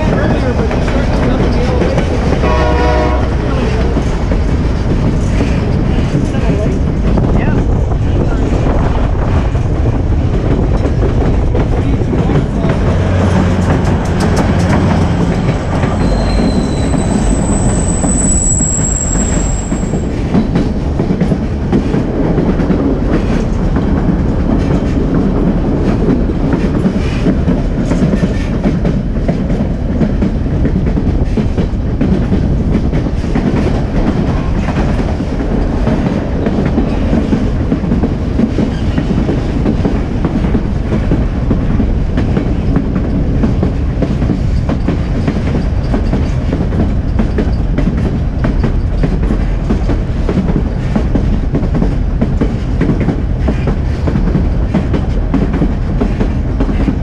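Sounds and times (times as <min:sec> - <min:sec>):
train rumbling on rails: 0:00.0 - 0:57.0
high wheel squeal: 0:15.4 - 0:20.1.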